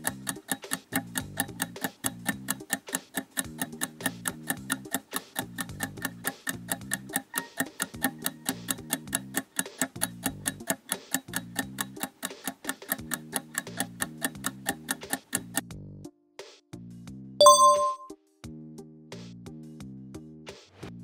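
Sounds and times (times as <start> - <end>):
clock-like ticking: 0.0 - 15.7.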